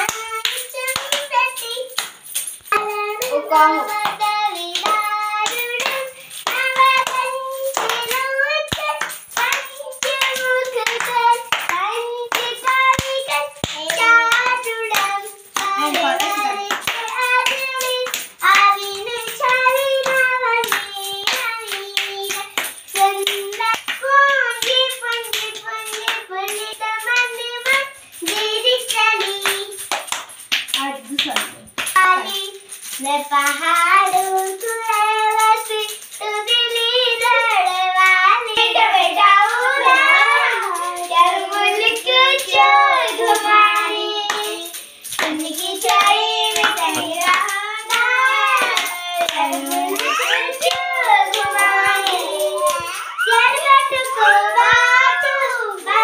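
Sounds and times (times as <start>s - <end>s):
hand claps: 0.0s - 56.0s
children singing: 36.6s - 56.0s.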